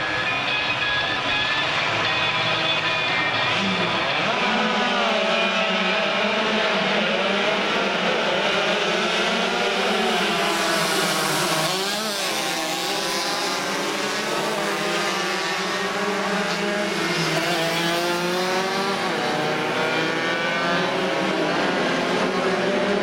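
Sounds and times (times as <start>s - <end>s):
racing motorcycles riding past: 6.4s - 23.0s.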